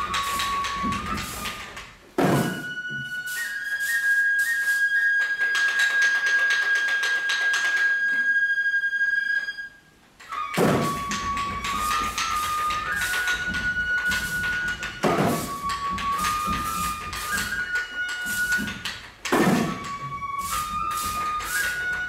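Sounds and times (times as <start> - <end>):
drum beats: 0.0 - 3.9, 10.3 - 22.0
flute holding high note: 0.0 - 22.0.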